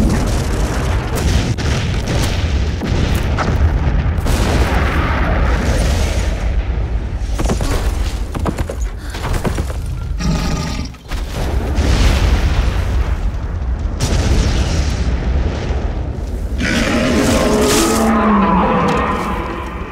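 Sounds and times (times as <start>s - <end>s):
sharp explosion blasts: 0.0s - 7.4s, 11.2s - 16.9s.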